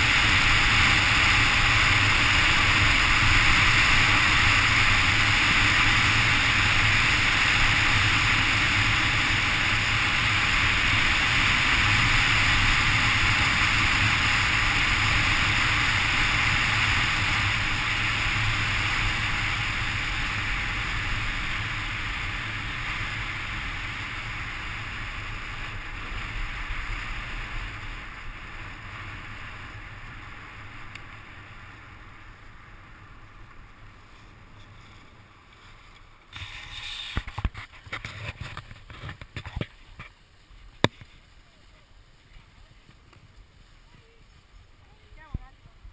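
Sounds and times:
skis running over snow: 0:00.0 - 0:45.9.

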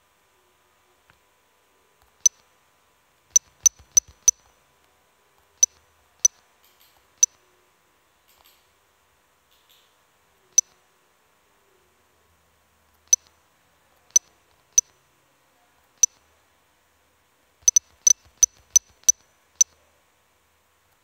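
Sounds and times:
phone touch-feedback clicks: 0:03.4 - 0:04.5, 0:17.7 - 0:19.8.

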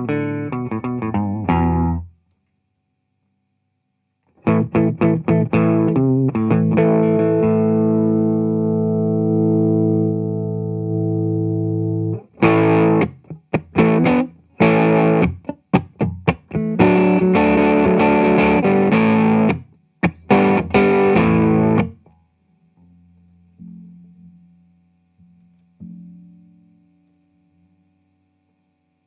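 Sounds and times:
faint low amplifier hum: 0:00.0 - 0:29.0
electric guitar strummed chords: 0:04.4 - 0:22.1.

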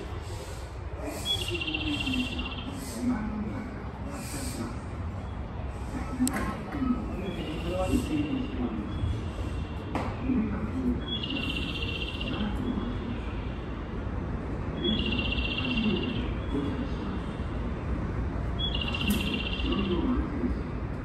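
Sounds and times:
trilling high bird chirp: 0:18.6 - 0:19.9.

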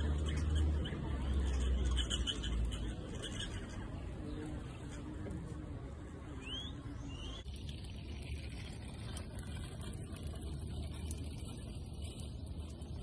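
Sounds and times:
rising whistled bird notes: 0:06.4 - 0:07.4.

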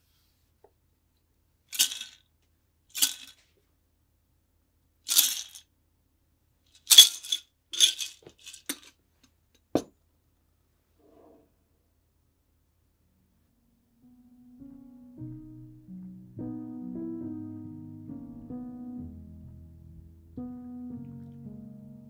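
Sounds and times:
ice rattling in metal shaker: 0:01.7 - 0:02.2, 0:02.9 - 0:03.4, 0:05.1 - 0:05.6, 0:06.8 - 0:08.9.

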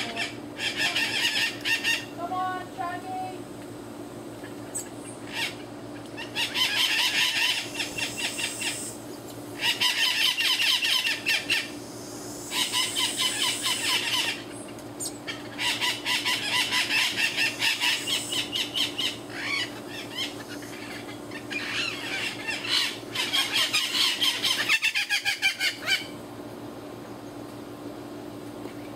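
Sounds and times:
parrots squawking: 0:00.0 - 0:02.2, 0:04.8 - 0:09.0, 0:09.6 - 0:11.8, 0:12.5 - 0:14.6, 0:15.2 - 0:26.2.

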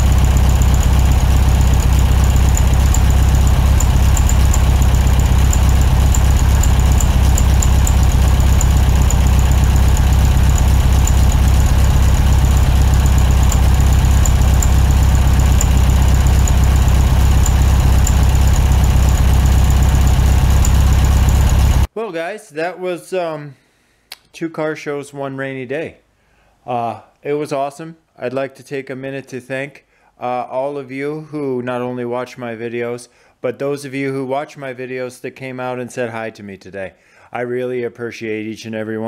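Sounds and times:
loud engine running: 0:00.0 - 0:21.9.

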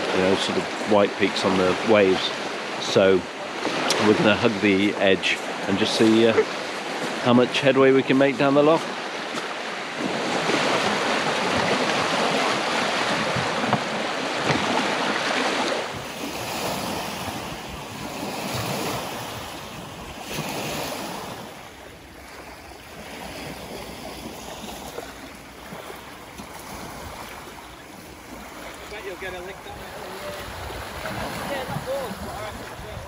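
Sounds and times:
waves washing over shingle: 0:00.0 - 0:33.0
wind on microphone: 0:10.0 - 0:21.9, 0:29.5 - 0:33.0.

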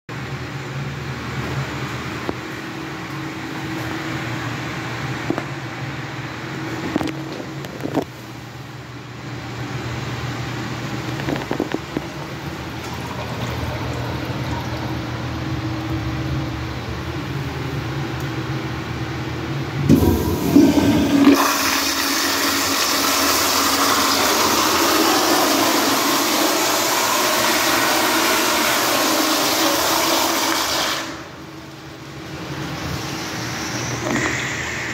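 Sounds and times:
water rushing in toilet: 0:11.4 - 0:16.7, 0:19.8 - 0:31.4.

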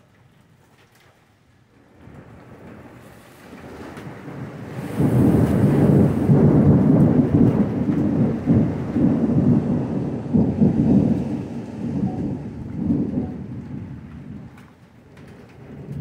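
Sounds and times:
steady rain: 0:00.0 - 0:16.0
thunder rumbling: 0:01.8 - 0:16.0.

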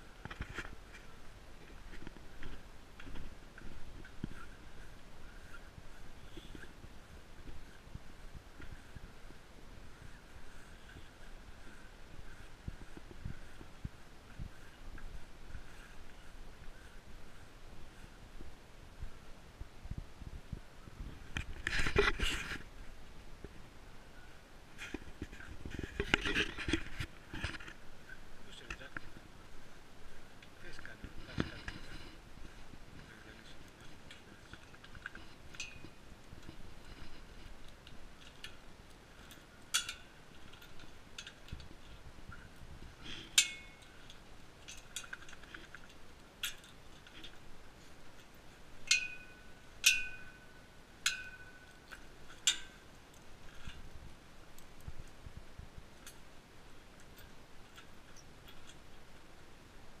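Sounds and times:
metal gate clinking: 0:43.4 - 0:44.0, 0:48.9 - 0:50.4.

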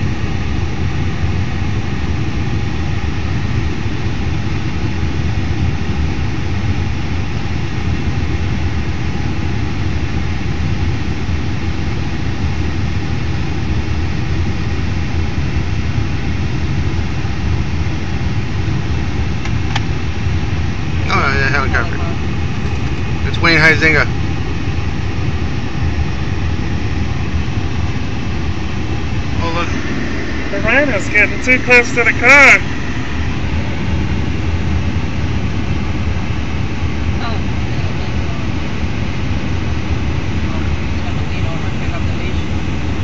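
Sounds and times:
vehicle engine rumble: 0:16.0 - 0:43.0.

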